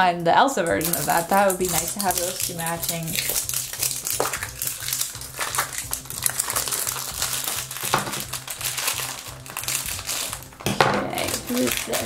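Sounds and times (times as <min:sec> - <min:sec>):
background music with low beat: 0:00.0 - 0:12.0
foil wrapper crinkling: 0:00.7 - 0:12.0
scissors cutting: 0:00.8 - 0:08.2, 0:11.2 - 0:12.0.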